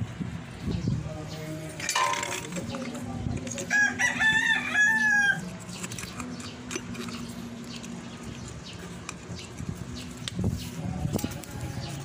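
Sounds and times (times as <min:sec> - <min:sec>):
rooster crowing: 0:03.7 - 0:05.4.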